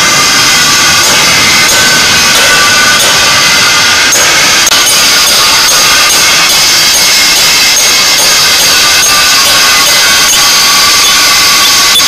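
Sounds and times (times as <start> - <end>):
music with steady beat: 0.0 - 11.9.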